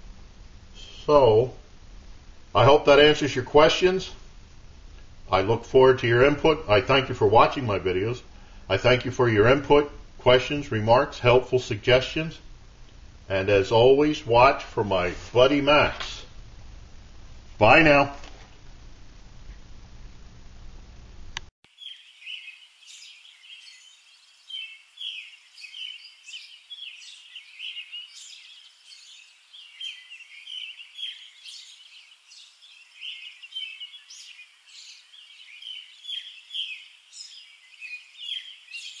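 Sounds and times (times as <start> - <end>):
low room hum: 0.0 - 21.5
small birds chirping: 21.7 - 39.0.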